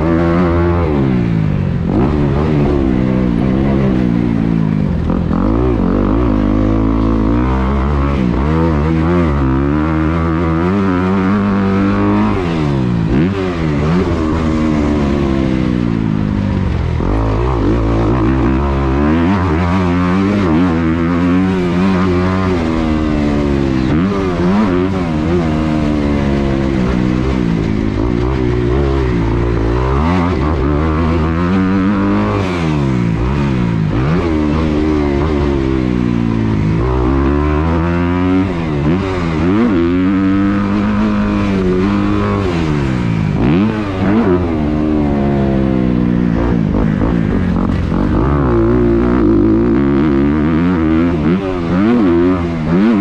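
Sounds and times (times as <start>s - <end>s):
dirt bike engine revving: 0.0s - 53.0s.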